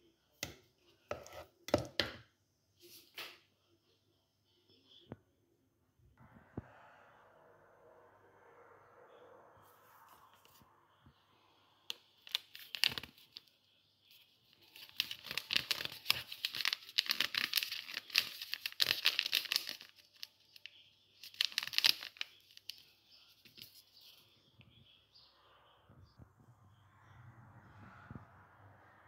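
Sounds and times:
spice packet ripping: 0:11.9 - 0:13.4, 0:14.6 - 0:20.6, 0:21.2 - 0:22.8
packet crackling rustle: 0:11.9 - 0:13.5, 0:14.4 - 0:23.9.

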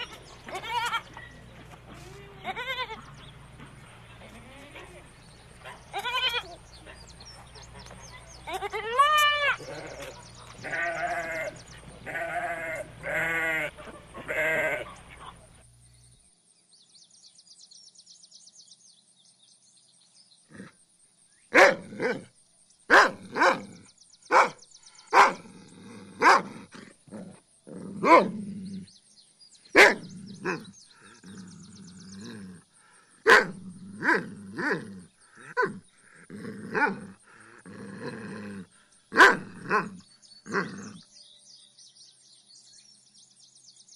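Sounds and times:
goat bleating: 0:00.0 - 0:07.0, 0:07.7 - 0:15.4
dog barking: 0:05.6 - 0:06.0, 0:21.5 - 0:22.2, 0:22.9 - 0:23.7, 0:24.3 - 0:25.4, 0:26.2 - 0:26.6, 0:28.0 - 0:28.3, 0:29.8 - 0:30.6, 0:33.2 - 0:34.2, 0:39.2 - 0:39.9.

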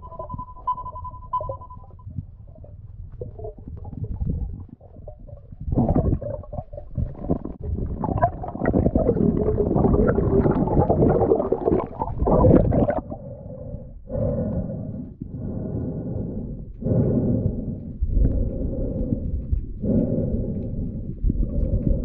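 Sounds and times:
underwater air bubbles rumbling: 0:00.0 - 0:22.0.

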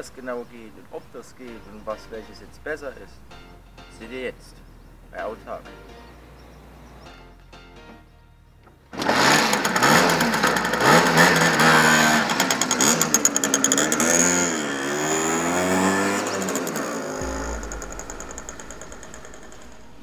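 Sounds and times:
music: 0:01.3 - 0:09.0, 0:17.2 - 0:20.0
two-stroke scooter engine revving: 0:08.9 - 0:20.0.

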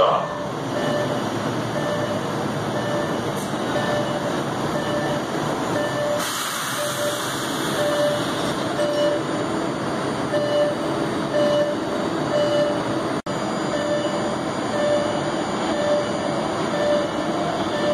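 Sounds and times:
subway train running noise: 0:00.0 - 0:17.9
short beeps: 0:00.2 - 0:01.2, 0:01.8 - 0:02.2, 0:05.8 - 0:07.2, 0:07.8 - 0:09.3, 0:13.7 - 0:17.9.

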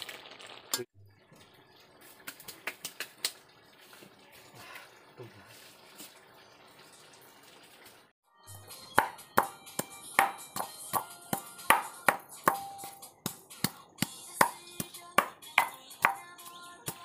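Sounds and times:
pestle pounding in metal mortar: 0:09.0 - 0:16.3.

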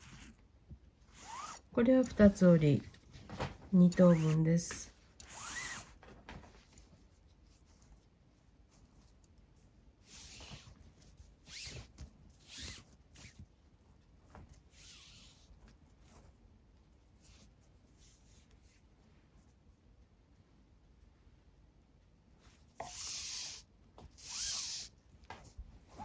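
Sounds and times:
cord swishing through loops: 0:01.1 - 0:02.9, 0:03.8 - 0:06.0, 0:10.0 - 0:13.5, 0:14.3 - 0:15.6, 0:22.8 - 0:26.0.

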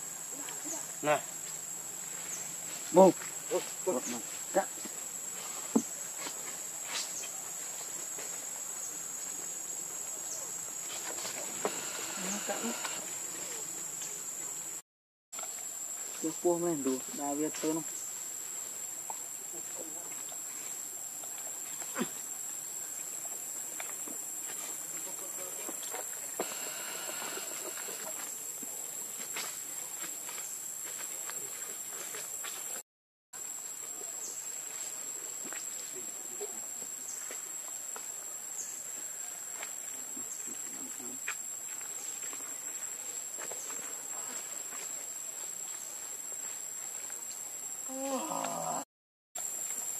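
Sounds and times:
insects droning: 0:00.0 - 0:14.8, 0:15.4 - 0:32.8, 0:33.4 - 0:48.8, 0:49.4 - 0:49.9
hiss: 0:26.4 - 0:28.1.

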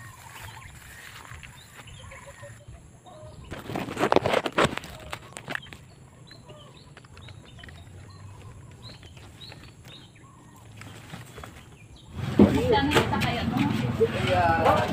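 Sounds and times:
birds chirping faintly: 0:00.0 - 0:13.6
handling rustle: 0:03.5 - 0:11.9.

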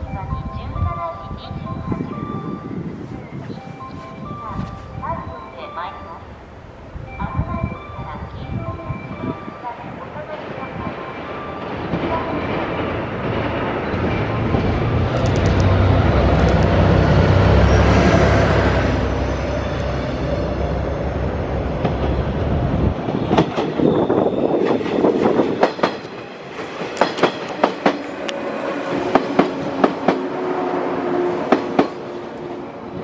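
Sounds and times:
diesel locomotive engine rumbling: 0:00.0 - 0:33.0
train wheels clacking over rail joints: 0:24.6 - 0:28.1.

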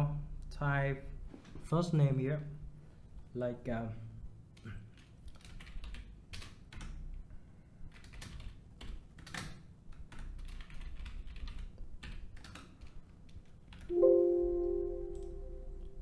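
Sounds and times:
keyboard typing clicks: 0:07.9 - 0:16.0
musical chord ringing: 0:13.9 - 0:16.0.

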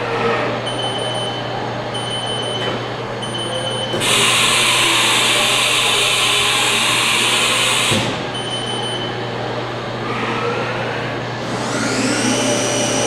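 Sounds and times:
machine low hum: 0:00.0 - 0:13.0
machine hiss: 0:04.0 - 0:08.0.

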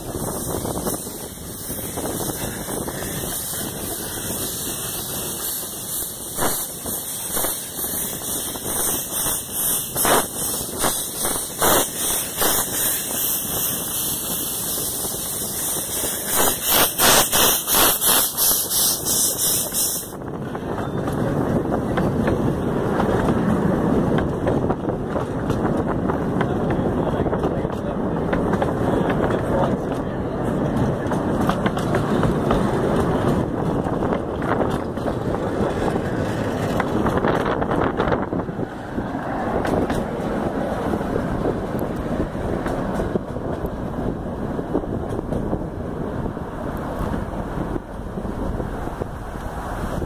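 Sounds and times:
steam hissing: 0:00.0 - 0:20.2
carriage wheels rumbling on rails: 0:00.0 - 0:50.0
steam locomotive exhaust chuffs: 0:00.0 - 0:50.0.

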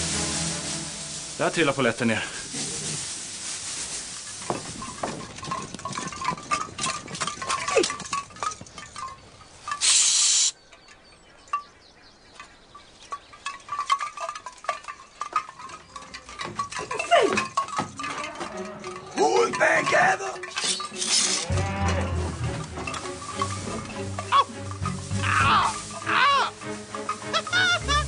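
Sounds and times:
loud hiss: 0:00.0 - 0:04.2, 0:09.8 - 0:10.6
armour chinking and jingling: 0:03.8 - 0:28.0.

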